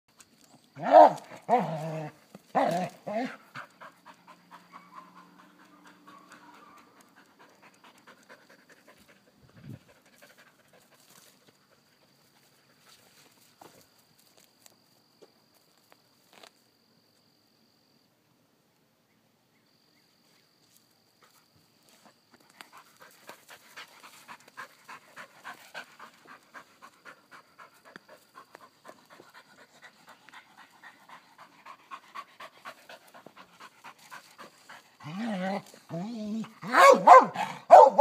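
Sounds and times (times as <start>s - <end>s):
dog panting: 3.3s - 12.9s, 22.6s - 35.1s.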